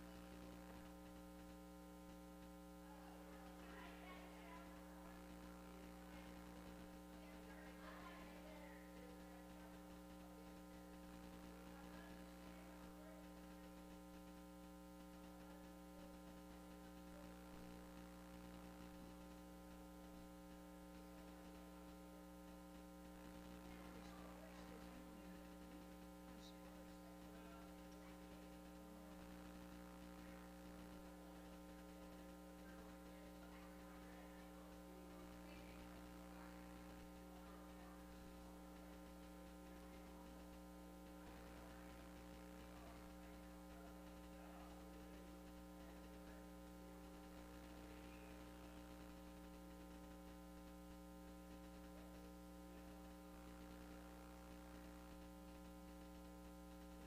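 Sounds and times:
electrical mains hum: 0:00.0 - 0:57.0.

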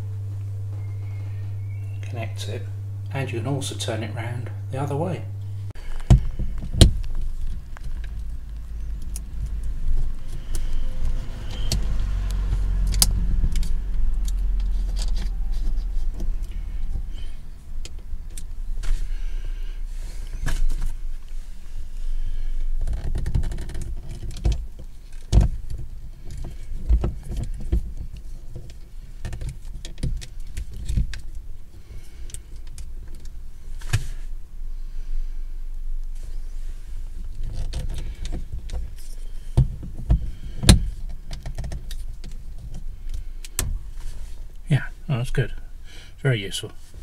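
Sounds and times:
low rumble: 0:04.5 - 0:23.6.

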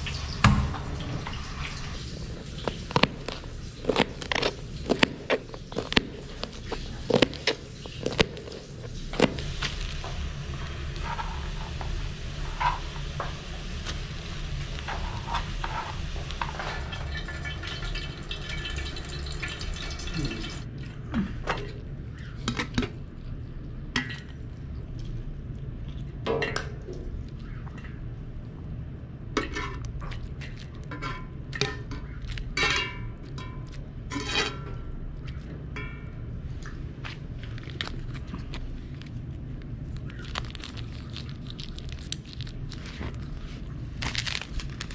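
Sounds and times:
steady low hum: 0:00.0 - 0:44.9
plant stems snapping: 0:02.6 - 0:10.1, 0:39.9 - 0:43.3, 0:44.0 - 0:44.9.

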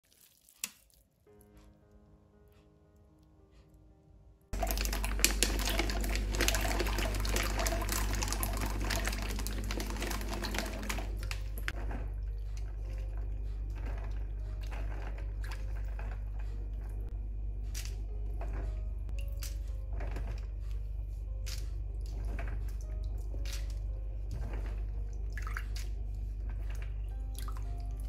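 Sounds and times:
water splashing into a metal bowl: 0:00.0 - 0:01.1, 0:04.6 - 0:11.8
water sloshing: 0:04.6 - 0:17.1, 0:21.5 - 0:28.0
steady low hum: 0:04.6 - 0:28.0.

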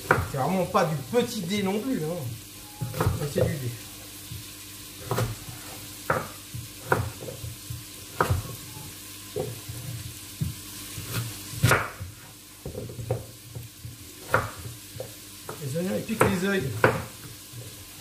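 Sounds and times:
knife knocking on wooden board: 0:02.8 - 0:03.6, 0:11.6 - 0:15.6.

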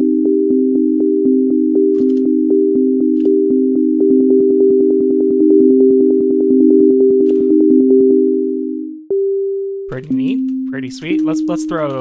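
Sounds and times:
sine tone arpeggio: 0:00.0 - 0:12.0.

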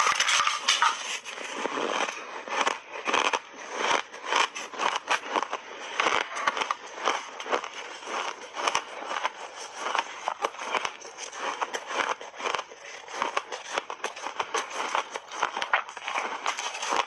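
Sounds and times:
metal spoon scooping ice: 0:00.0 - 0:03.5
ice being chewed: 0:00.0 - 0:17.0.

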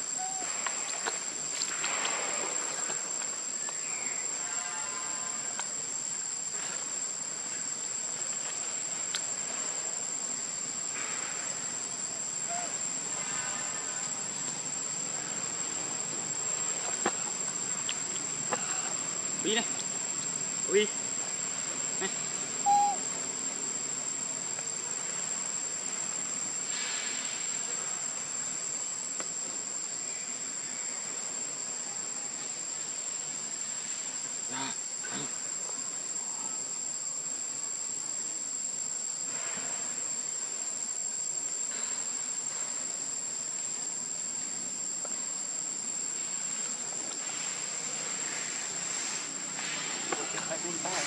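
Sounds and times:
insects droning: 0:00.0 - 0:51.0
short sharp chirp: 0:22.7 - 0:23.0.

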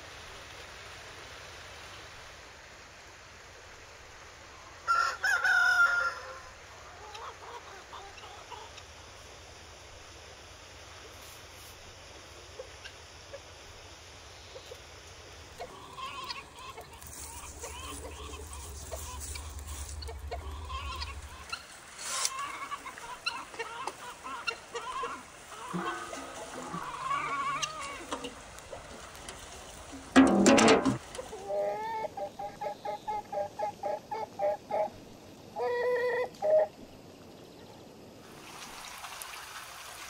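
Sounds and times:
rooster crowing: 0:04.8 - 0:06.6
chickens clucking: 0:06.9 - 0:08.9, 0:15.5 - 0:34.9.

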